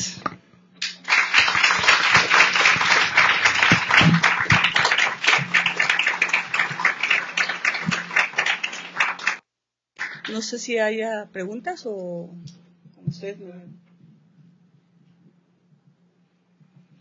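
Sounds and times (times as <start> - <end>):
audience applauding: 0.8 - 9.4, 10.0 - 10.4.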